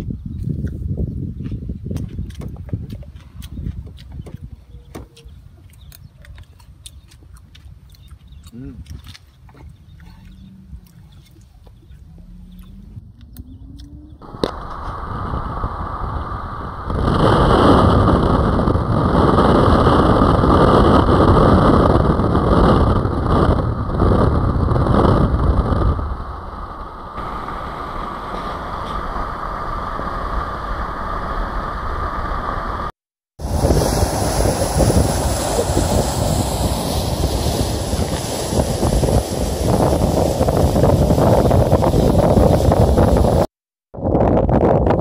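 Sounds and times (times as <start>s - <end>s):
wind and road rush: 0.0s - 45.0s
wind buffeting microphone: 0.0s - 45.0s
surf washing across rocks: 14.2s - 43.5s.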